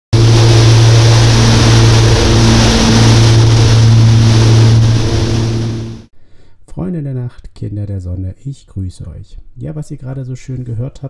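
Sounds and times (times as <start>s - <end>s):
piston aircraft engines droning: 0.2s - 6.1s.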